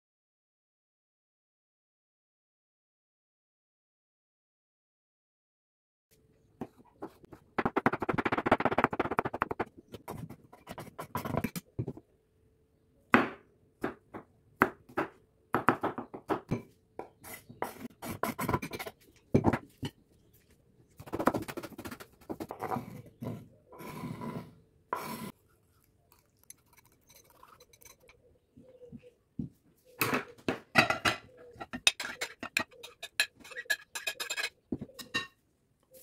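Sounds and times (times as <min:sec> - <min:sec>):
spatula stirring thick sauce: 0:26.1 - 0:28.1.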